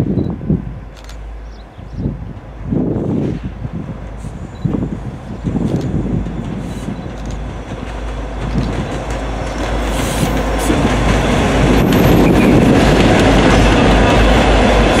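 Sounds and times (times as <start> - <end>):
train wheels on rails: 0.1 - 15.0
locomotive engines: 3.9 - 15.0.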